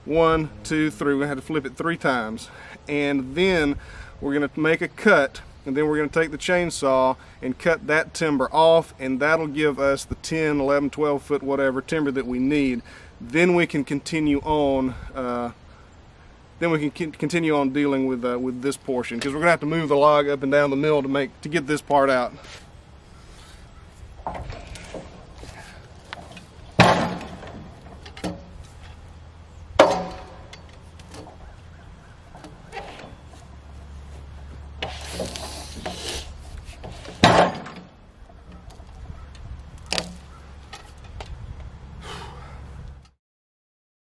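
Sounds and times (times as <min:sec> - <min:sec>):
wood scraping on rails: 0:22.4 - 0:29.1, 0:29.8 - 0:41.4
log knocking and thudding: 0:24.2 - 0:29.0, 0:29.8 - 0:31.4, 0:36.7 - 0:41.4.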